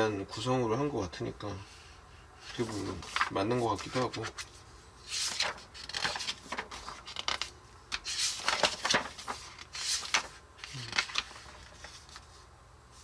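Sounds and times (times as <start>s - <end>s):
magazine pages rustling: 2.4s - 12.5s.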